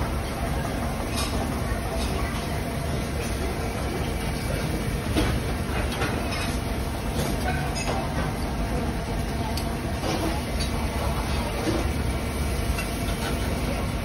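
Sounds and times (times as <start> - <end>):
restaurant crowd rumble: 0.0 - 14.0
dishes clicking and clattering: 1.0 - 2.4, 4.1 - 8.5, 12.6 - 13.8.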